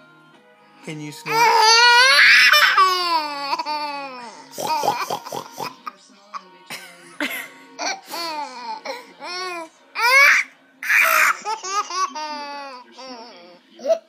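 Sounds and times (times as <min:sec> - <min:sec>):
baby laughing: 0:01.3 - 0:05.9, 0:07.8 - 0:14.0.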